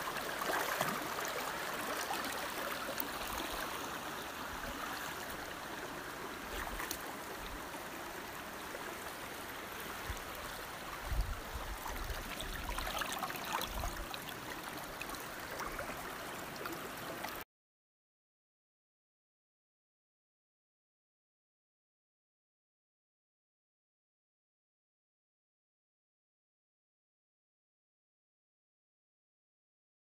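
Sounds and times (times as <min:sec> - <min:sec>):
flowing water rushing: 0:00.0 - 0:17.4.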